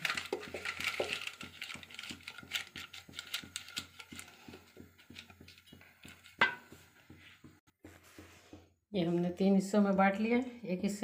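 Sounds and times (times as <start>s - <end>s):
paper crinkling in metal tin: 0.0s - 4.5s.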